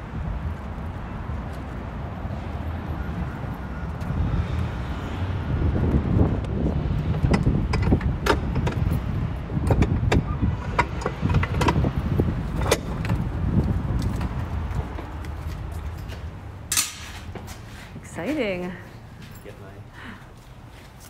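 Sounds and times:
lock clicking and knocking: 7.1 - 12.0, 12.6 - 13.2.

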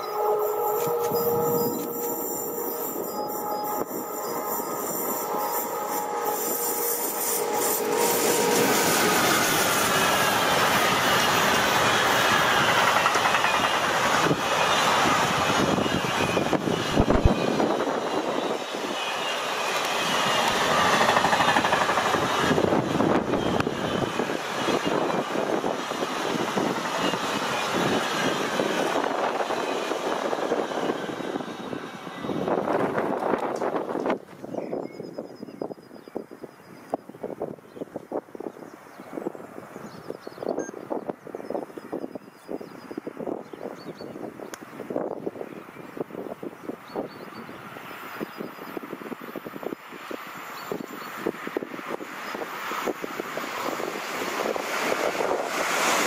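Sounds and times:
train wheels clattering on rails: 7.6 - 34.4.

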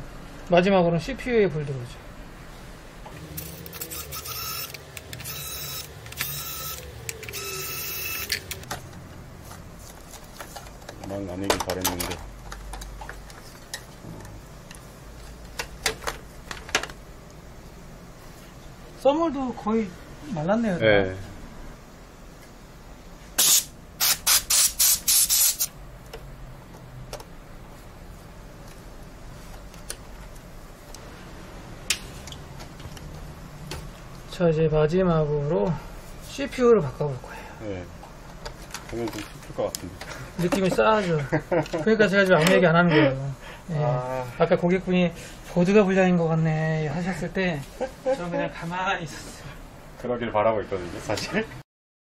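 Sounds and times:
electric screwdriver whirring: 3.4 - 8.6
short hissing sprays: 23.4 - 25.8.

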